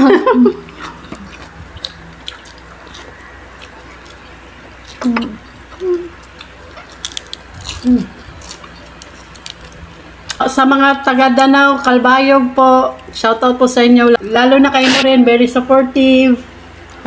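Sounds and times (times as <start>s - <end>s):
crunchy chewing: 0.6s - 10.4s
wet mouth clicks: 14.8s - 15.0s.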